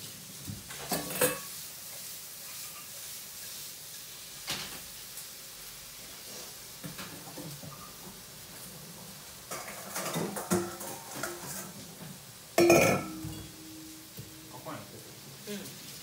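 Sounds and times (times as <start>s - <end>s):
dishes clinking and knocking: 0.6s - 1.5s, 9.5s - 14.6s
cookware clanking with ringing tone: 12.6s - 14.6s.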